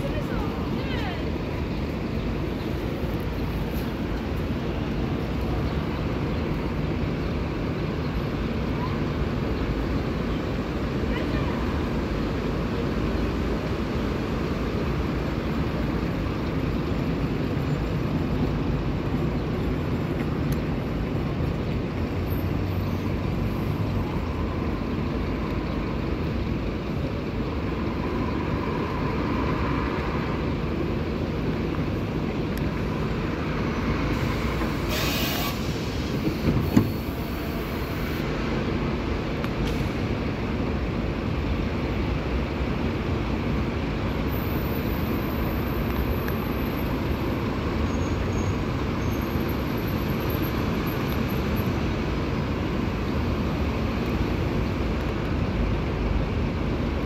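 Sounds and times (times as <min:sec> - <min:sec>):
bus engine and rolling rumble: 0:00.0 - 0:57.0
brief hiss: 0:34.2 - 0:37.2.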